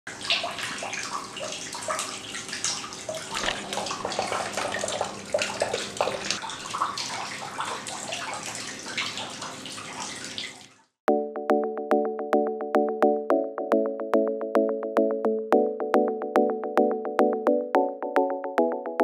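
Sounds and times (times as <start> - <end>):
fountain water trickling: 0.1 - 10.8.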